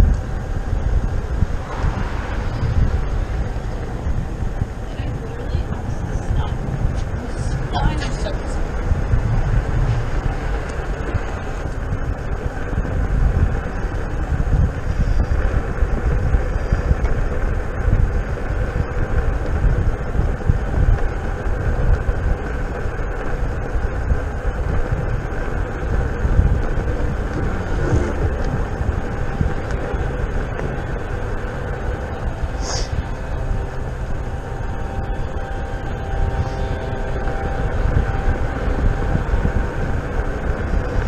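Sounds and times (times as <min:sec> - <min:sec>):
tyre rumble on asphalt: 0:00.0 - 0:41.0
wind buffeting microphone: 0:00.0 - 0:41.0.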